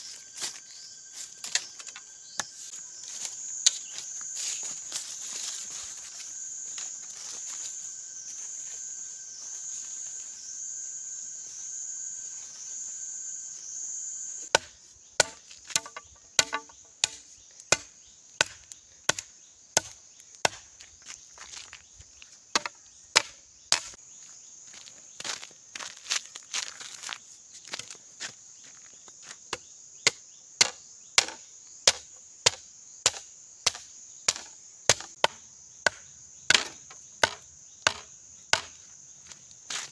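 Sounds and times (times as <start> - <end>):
insects buzzing: 0.0 - 39.9
sharp chopping strikes: 14.5 - 20.7, 30.1 - 38.8.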